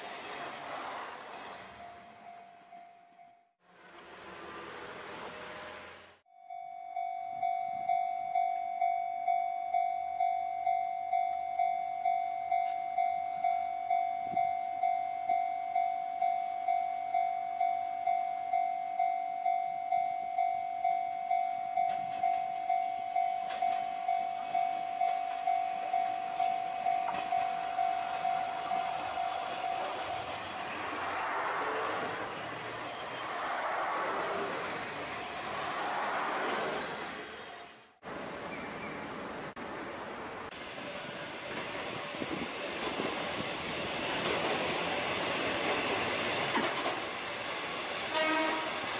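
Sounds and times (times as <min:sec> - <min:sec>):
diesel railcar passing: 0:00.0 - 0:48.9
level crossing bell ringing: 0:06.3 - 0:30.3.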